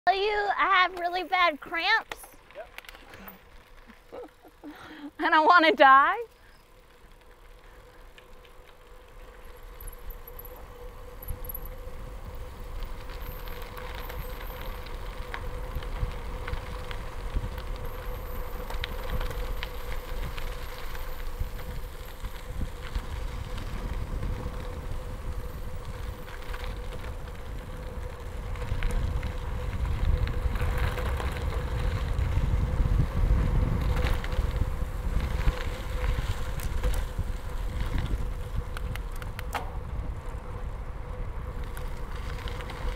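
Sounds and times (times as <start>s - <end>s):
bike tyres rolling on gravel: 0.1s - 42.9s.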